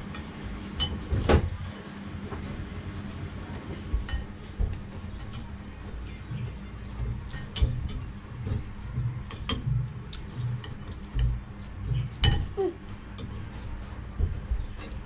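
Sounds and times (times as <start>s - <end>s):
spoons clinking against plates: 4.0s - 4.4s, 7.0s - 8.1s, 9.3s - 12.6s.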